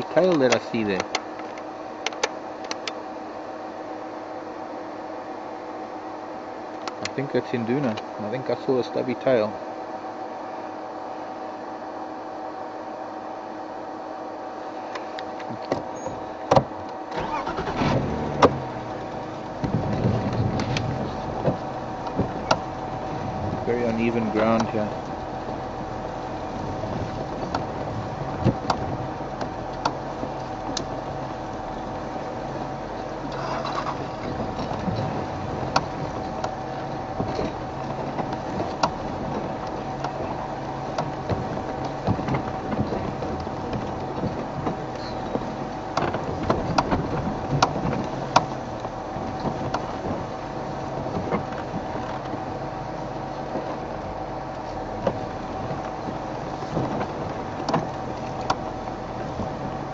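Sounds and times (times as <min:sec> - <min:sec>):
vehicle engine droning: 0:00.0 - 0:59.9.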